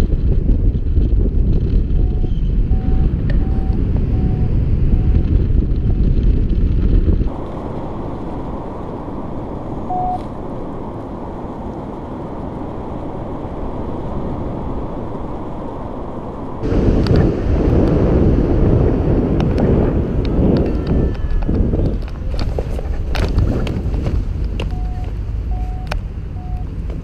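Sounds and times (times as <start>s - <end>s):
wind buffeting microphone: 0.0s - 27.0s
short electronic beep: 2.0s - 5.2s, 9.9s - 10.2s.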